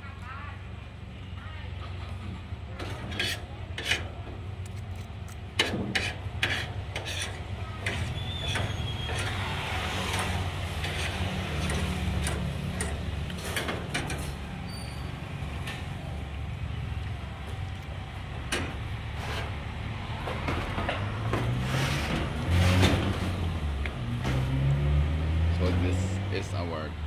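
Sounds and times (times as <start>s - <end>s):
cutlery scraping a plate: 2.8s - 4.1s, 5.6s - 9.4s.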